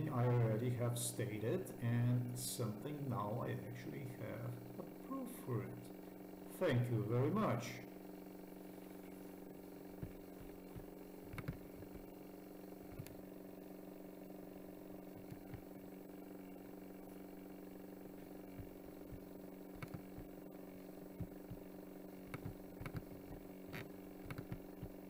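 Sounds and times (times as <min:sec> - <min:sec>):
low electrical hum: 0:00.0 - 0:25.0
computer mouse clicks: 0:10.0 - 0:11.6, 0:18.6 - 0:20.3, 0:22.3 - 0:24.9.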